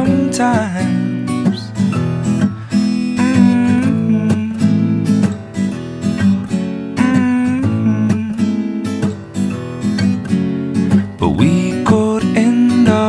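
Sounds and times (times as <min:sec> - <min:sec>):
song with strummed acoustic guitar: 0:00.0 - 0:13.0.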